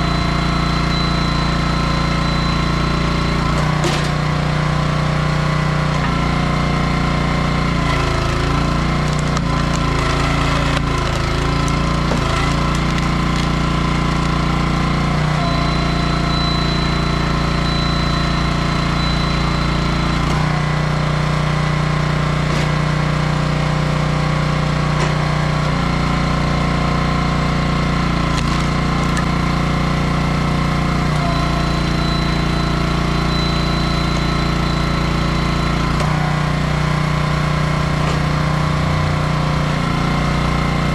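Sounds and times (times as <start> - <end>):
log splitter engine running: 0.0 - 40.9.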